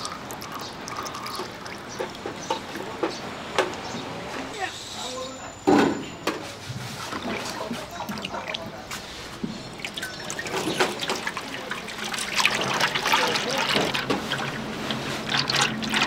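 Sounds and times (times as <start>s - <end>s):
cooking oil glugging and trickling: 0.0s - 2.9s, 7.0s - 16.0s.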